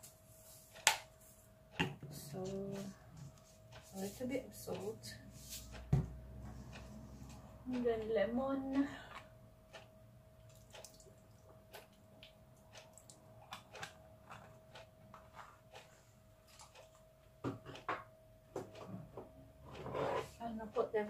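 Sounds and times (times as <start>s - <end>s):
faint steady hum: 0.0s - 21.0s
liquid dripping onto meat: 10.4s - 11.5s.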